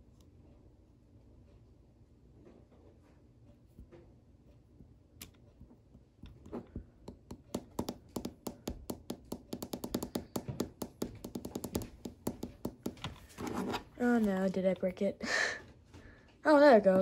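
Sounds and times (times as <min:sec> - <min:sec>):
fingertips tapping on glass screen: 0:06.2 - 0:13.3.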